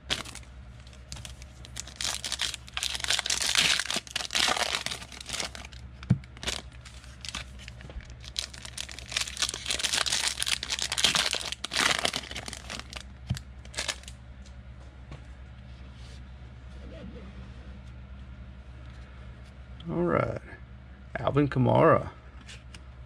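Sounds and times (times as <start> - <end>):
foil wrappers crinkling and tearing: 0.0 - 14.1.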